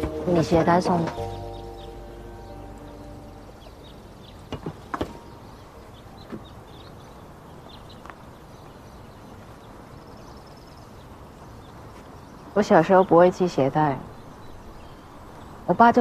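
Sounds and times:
held music note: 0:00.0 - 0:04.3.

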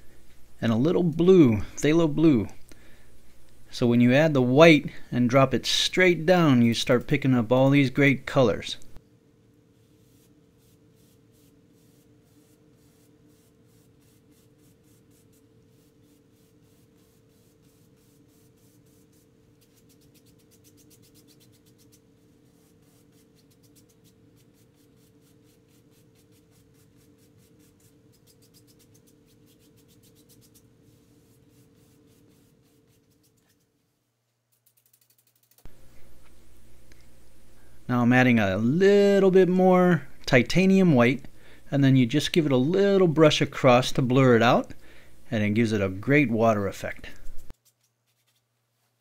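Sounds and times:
low steady hum: 0:00.0 - 0:19.8, 0:35.7 - 0:47.5
brush strokes on canvas: 0:09.7 - 0:33.7.

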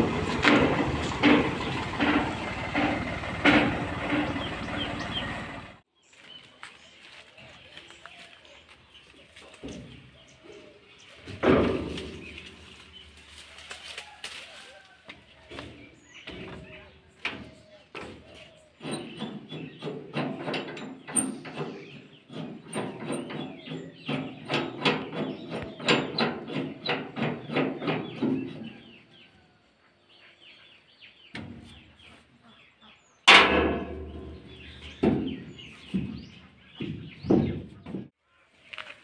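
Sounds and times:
sheet metal knocks and rattles: 0:00.0 - 0:04.5, 0:11.3 - 0:12.7, 0:15.5 - 0:28.8, 0:33.3 - 0:38.1
loud metal clatter: 0:00.0 - 0:05.8, 0:18.8 - 0:28.5, 0:33.3 - 0:35.6.

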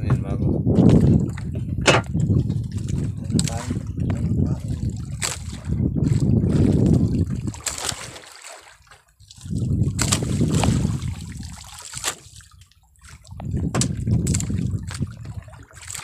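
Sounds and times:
water splashing against boat: 0:00.0 - 0:16.0
sharp knocks: 0:01.8 - 0:02.2, 0:13.7 - 0:14.0.

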